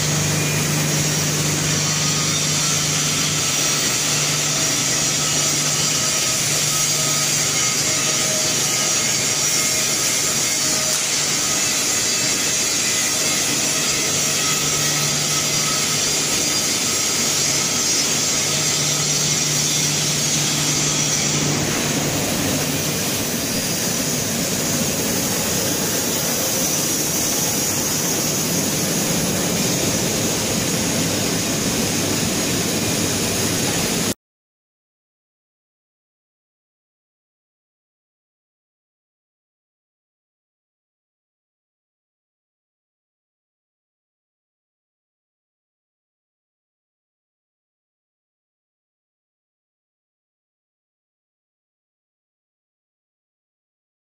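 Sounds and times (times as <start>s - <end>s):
machine hum and hiss: 0.0s - 34.2s.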